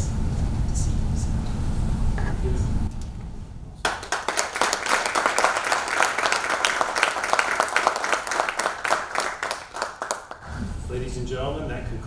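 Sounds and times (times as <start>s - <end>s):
audience applauding: 3.8s - 10.5s.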